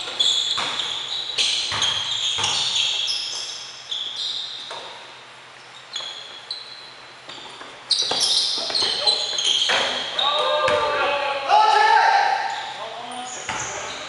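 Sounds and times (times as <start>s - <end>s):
sneakers squeaking: 0.0s - 11.2s, 12.2s - 14.0s
basketball bouncing on wooden floor: 1.7s - 2.8s.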